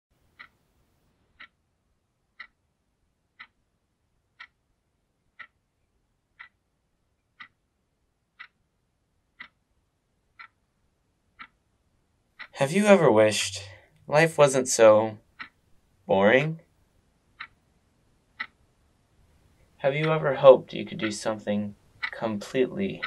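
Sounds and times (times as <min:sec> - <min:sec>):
clock ticking: 0:00.2 - 0:00.8, 0:01.4 - 0:01.6, 0:02.4 - 0:02.6, 0:03.4 - 0:03.6, 0:04.4 - 0:04.6, 0:05.3 - 0:05.6, 0:06.4 - 0:06.7, 0:07.3 - 0:07.7, 0:08.3 - 0:08.7, 0:09.4 - 0:09.7, 0:10.3 - 0:10.7, 0:11.3 - 0:11.6, 0:12.4 - 0:16.7, 0:17.3 - 0:17.7, 0:18.4 - 0:18.7, 0:19.5 - 0:23.0.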